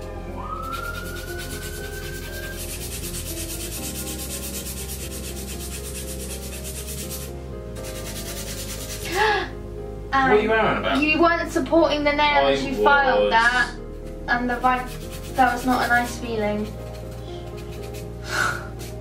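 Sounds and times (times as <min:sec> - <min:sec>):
soft background music: 0:00.0 - 0:19.0
nail file rasping: 0:00.6 - 0:09.2, 0:14.6 - 0:19.0.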